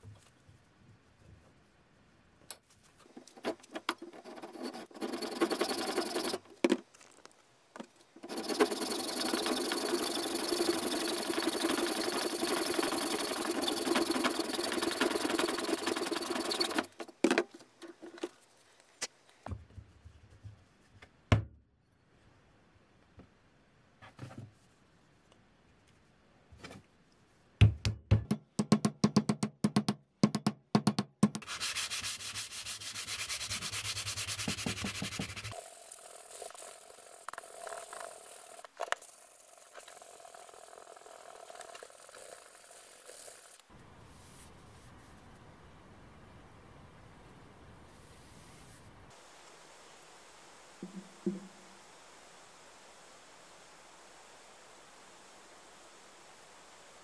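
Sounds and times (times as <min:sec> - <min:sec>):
hacksaw cutting wood: 0:03.5 - 0:06.4, 0:08.2 - 0:17.1
sandpaper rubbing on steel: 0:04.1 - 0:06.4, 0:08.2 - 0:17.0, 0:31.4 - 0:35.6
sharp knocks: 0:50.8 - 0:51.5.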